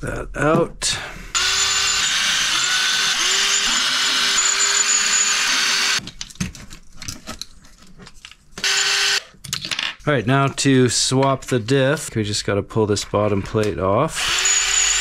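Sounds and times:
electric screwdriver whirring: 1.4s - 6.0s, 8.6s - 9.2s, 14.2s - 15.0s.

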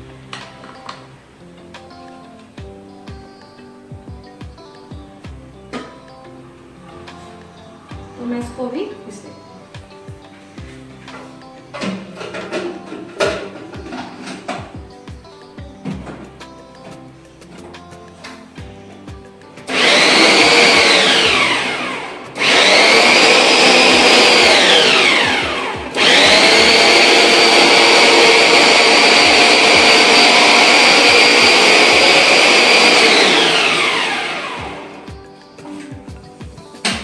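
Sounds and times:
electric mixer grinder whirring: 19.7s - 35.2s.

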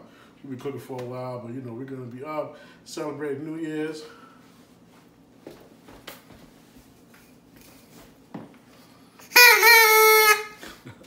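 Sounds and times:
buzzy plastic noisemaker whistle: 9.2s - 10.6s.

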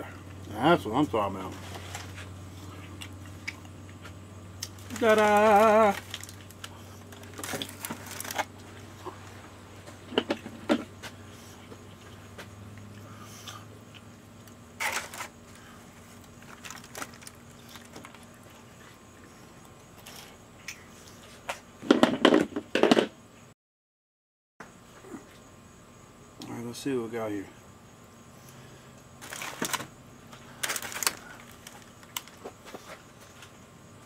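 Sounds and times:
aluminium foil crinkling: 4.6s - 8.7s, 14.8s - 18.6s, 29.2s - 32.9s.

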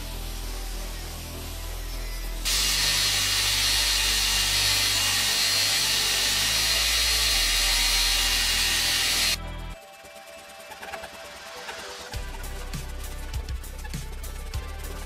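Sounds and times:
metal grinding on belt grinder: 2.0s - 9.4s.

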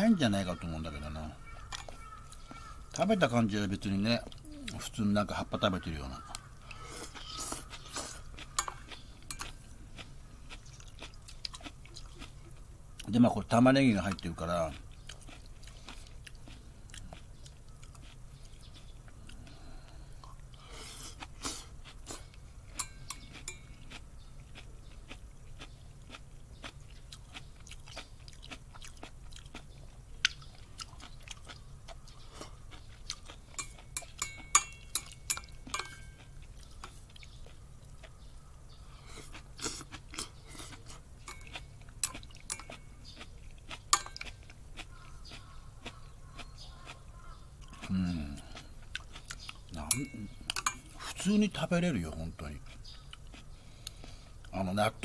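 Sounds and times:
person chewing and eating: 1.4s - 3.0s, 6.2s - 13.2s, 14.0s - 51.2s, 52.6s - 54.6s.

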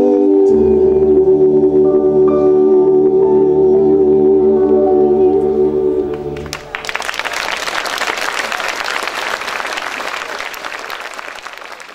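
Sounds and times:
male voices singing in harmony: 0.0s - 6.5s
audience applause: 6.4s - 11.9s.

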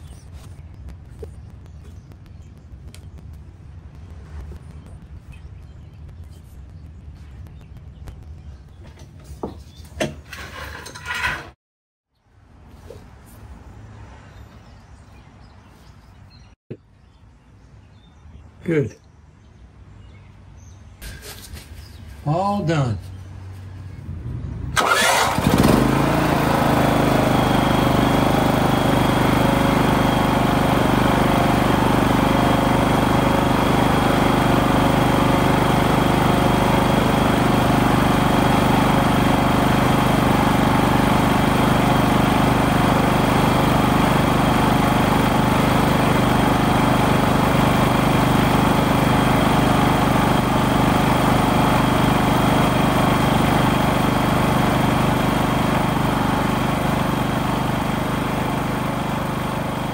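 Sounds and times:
generator engine running: 24.8s - 59.9s.

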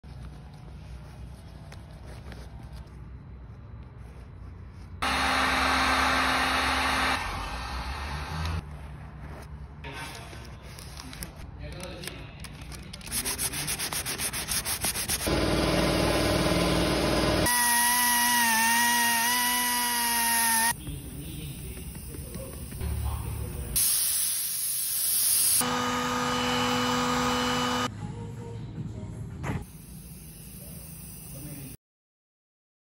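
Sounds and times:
heat gun blowing: 5.0s - 8.6s, 15.0s - 20.8s
palm sander whining: 5.0s - 8.6s, 14.8s - 20.8s, 25.6s - 27.9s.

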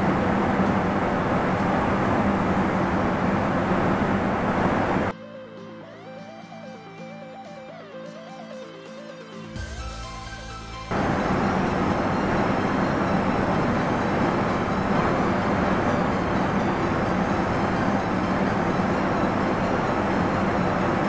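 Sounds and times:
gas burner roaring: 0.0s - 5.1s, 10.9s - 21.0s.

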